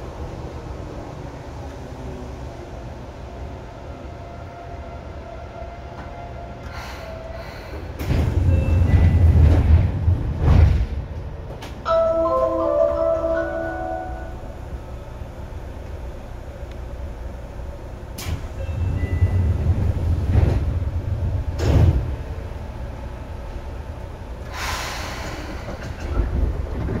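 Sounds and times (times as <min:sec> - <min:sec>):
train sliding doors: 0:00.0 - 0:14.4, 0:15.3 - 0:27.0
low rumble of train car: 0:00.0 - 0:27.0
hiss of compressed air: 0:24.5 - 0:25.5.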